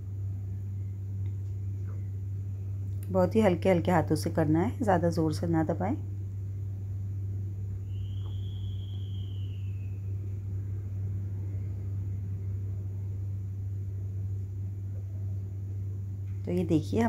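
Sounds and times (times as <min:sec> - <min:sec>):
steady low hum: 0:00.0 - 0:17.0
faint high whistle-like tone: 0:07.8 - 0:10.5.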